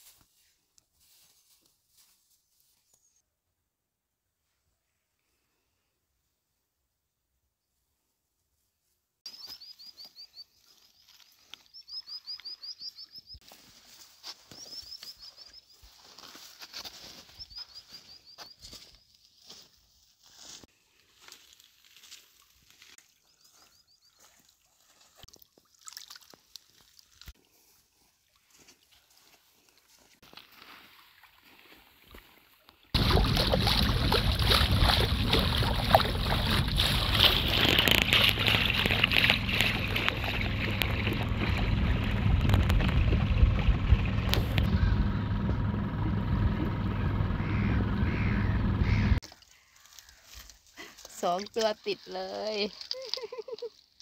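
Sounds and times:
small bird chirping: 9.3s - 13.4s, 14.5s - 15.9s, 17.2s - 19.2s
footsteps on stones: 15.8s - 25.4s, 35.6s - 40.9s
wind on microphone: 33.0s - 44.9s
outboard motor running: 33.0s - 49.2s
water rushing along hull: 33.0s - 49.2s.

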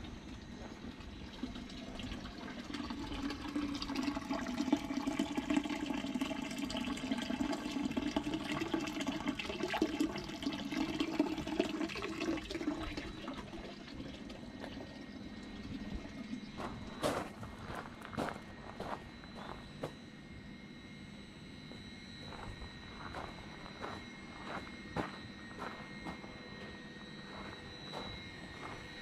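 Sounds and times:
water pouring into stone basin: 1.0s - 16.3s.

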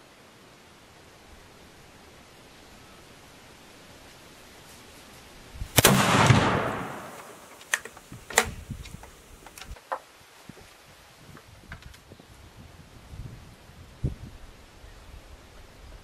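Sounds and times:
rifle shot echoing: 5.8s - 7.6s
sharp clicks: 5.8s - 9.8s.

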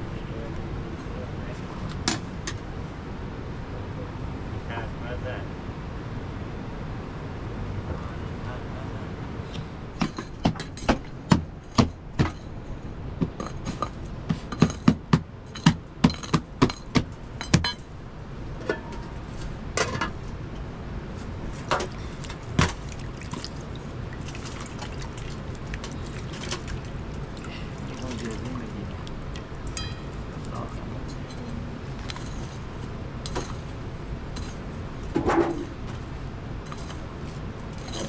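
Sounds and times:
sharp knocks and clinks: 10.0s - 12.6s, 13.2s - 17.9s, 18.6s - 19.2s, 29.6s - 32.6s.

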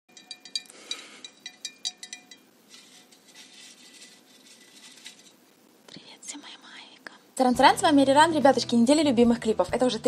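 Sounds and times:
light clinks with ringing tones: 0.1s - 3.2s
faint soft rustling: 2.6s - 7.2s.

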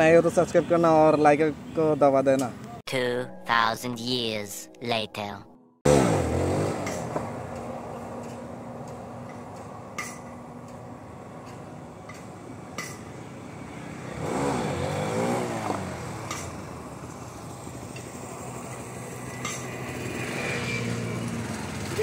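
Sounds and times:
motorcycle engine revving: 5.8s - 7.7s, 13.6s - 22.0s.

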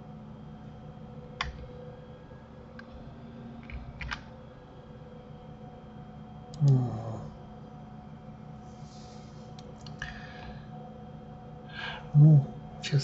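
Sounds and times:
steady low hum: 0.0s - 13.0s
computer mouse clicks: 3.6s - 4.2s.

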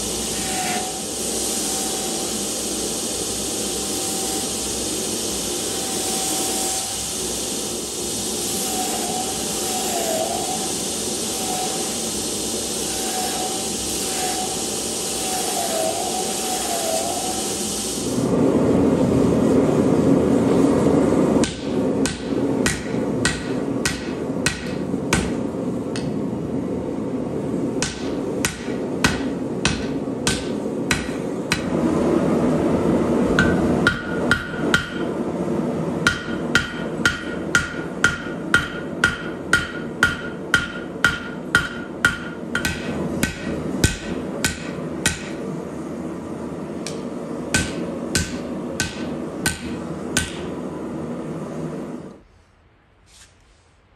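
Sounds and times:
steady rushing noise: 18.0s - 52.0s
hammer blows on anvil: 21.4s - 25.4s, 27.8s - 31.8s, 33.4s - 35.1s, 36.0s - 45.4s, 46.9s - 50.5s.

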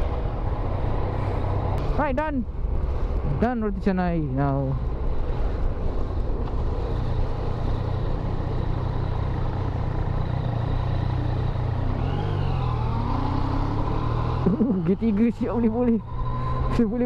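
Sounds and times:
motorcycle engine running: 4.8s - 17.0s.

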